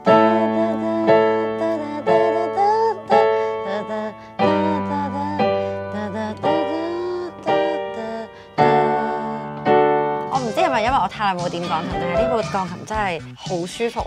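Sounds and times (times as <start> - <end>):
digital piano chords: 0.0 - 13.2.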